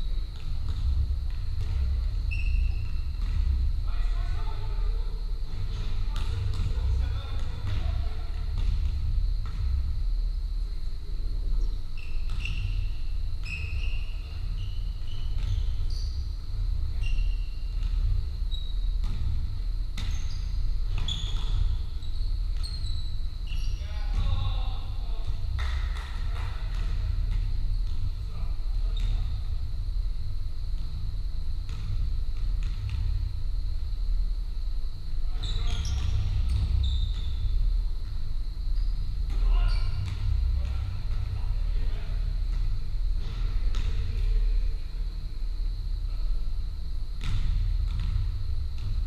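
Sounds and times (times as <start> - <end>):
steady low rumble: 0.0 - 12.0, 12.7 - 22.6, 23.2 - 49.0
sneaker squeaks: 0.1 - 4.3, 11.6 - 19.4, 20.0 - 24.8, 35.3 - 37.6, 38.7 - 41.6
ball bouncing on wooden floor: 0.3 - 2.4, 3.1 - 3.6
players' voices: 3.8 - 8.6, 23.8 - 27.1.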